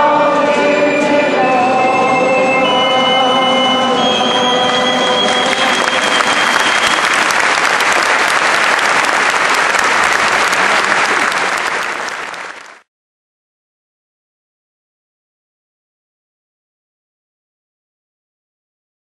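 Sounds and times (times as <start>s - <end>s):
held sung note: 0.0s - 7.3s
audience applauding: 4.0s - 12.9s.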